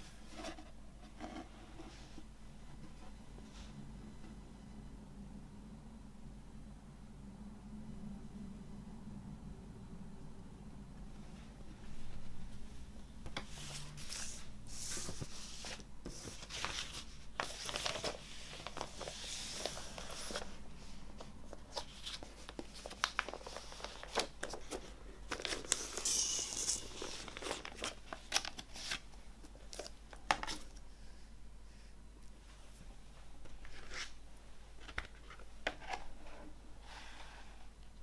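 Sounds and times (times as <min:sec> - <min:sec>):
plastic sleeve crinkling: 0:21.7 - 0:29.0.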